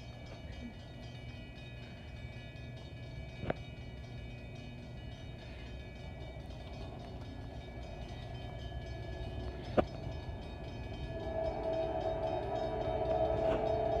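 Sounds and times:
low steady rumble: 0:00.0 - 0:14.0
distant train horn: 0:07.9 - 0:14.0.

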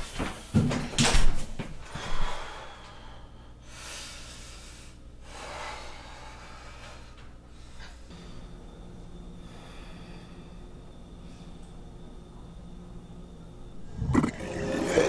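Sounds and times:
person breathing heavily: 0:01.9 - 0:08.0
low steady hum: 0:01.9 - 0:15.0.

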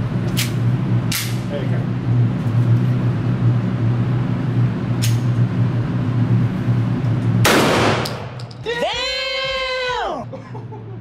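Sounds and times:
low hum: 0:00.0 - 0:11.0
shotgun blast: 0:07.4 - 0:08.4.

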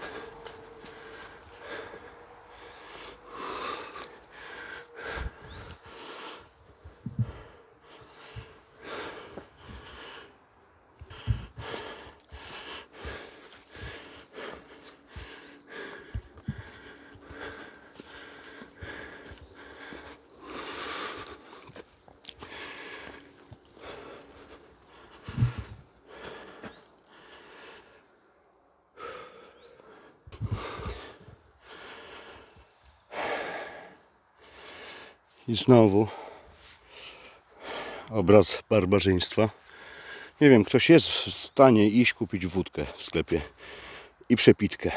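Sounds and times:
person breathing heavily: 0:00.0 - 0:41.3, 0:42.1 - 0:44.9
low thumps: 0:07.0 - 0:07.4.

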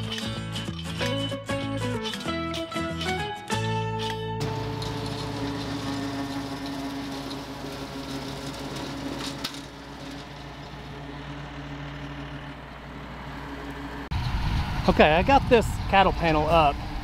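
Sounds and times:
tractor engine running: 0:00.0 - 0:15.0
rotary cutter mowing grass: 0:04.4 - 0:14.1.

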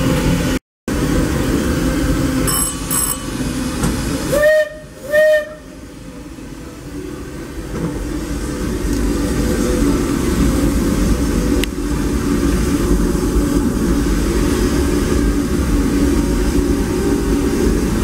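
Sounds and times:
steam locomotive whistle toots: 0:02.5 - 0:05.8.

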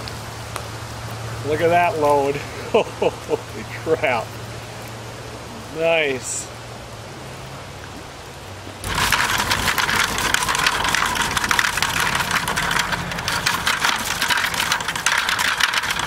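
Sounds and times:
crayfish clattering into bucket: 0:08.8 - 0:16.0
wire mesh rattling: 0:08.8 - 0:16.0.

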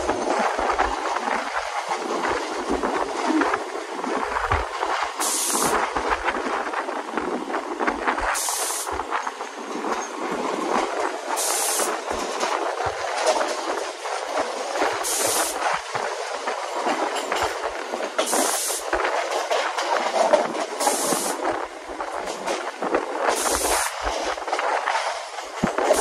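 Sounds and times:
train wheels rumbling and rattling: 0:00.0 - 0:26.0
high hiss: 0:05.2 - 0:05.8, 0:08.3 - 0:08.9, 0:11.4 - 0:12.0, 0:15.0 - 0:15.6, 0:18.2 - 0:18.9, 0:20.8 - 0:21.4, 0:23.3 - 0:24.0.

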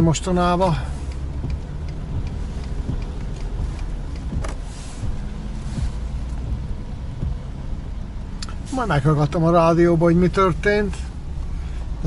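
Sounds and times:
engine and tyre rumble: 0:00.0 - 0:12.0
windshield wipers sweeping: 0:00.0 - 0:12.0
swish of spray: 0:04.5 - 0:06.6.

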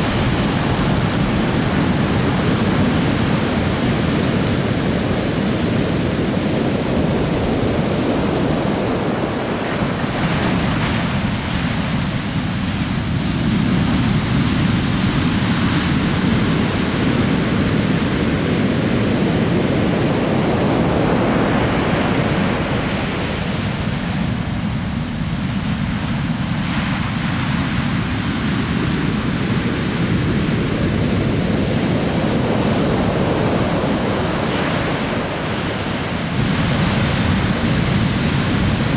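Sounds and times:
surf breaking on beach: 0:00.0 - 0:38.9.

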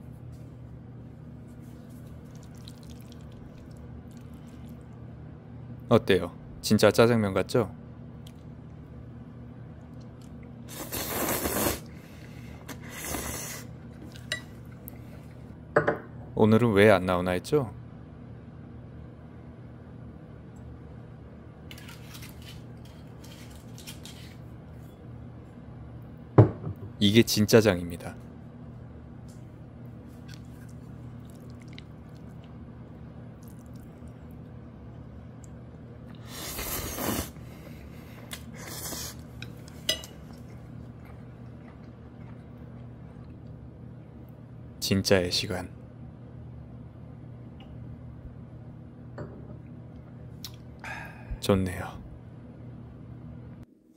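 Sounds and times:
low steady hum: 0:00.0 - 0:53.9
wet noodles rustling: 0:01.3 - 0:05.0, 0:21.7 - 0:24.8.

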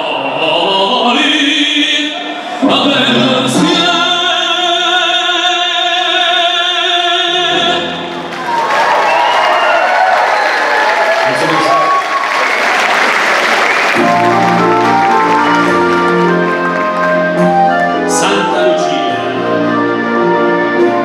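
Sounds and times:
male operatic singing: 0:00.0 - 0:08.2, 0:18.0 - 0:21.0
audience applause: 0:08.2 - 0:18.1.

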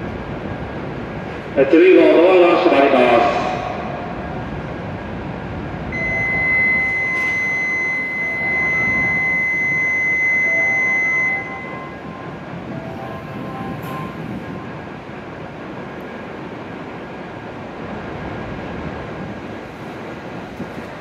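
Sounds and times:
station hum: 0:00.0 - 0:21.0
piercing electronic beep: 0:06.0 - 0:12.3.

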